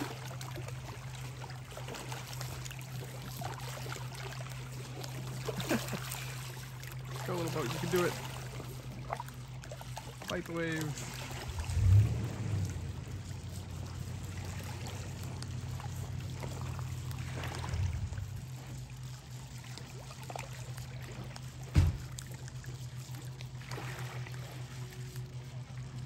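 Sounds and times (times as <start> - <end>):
waves lapping against rocks: 0.0 - 26.0
dull thump: 21.7 - 22.2.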